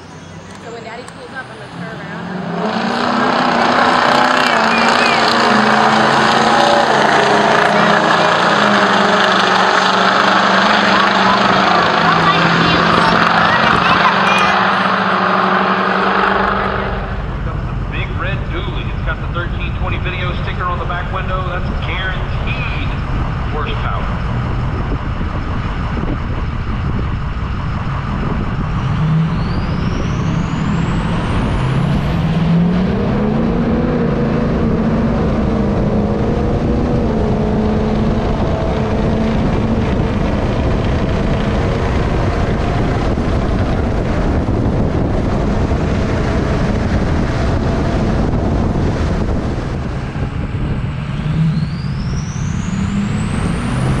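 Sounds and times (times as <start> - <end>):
diesel truck engine at full throttle: 0.0 - 54.0
wind rushing: 1.9 - 54.0
turbo whistle: 4.4 - 5.6, 28.8 - 31.0.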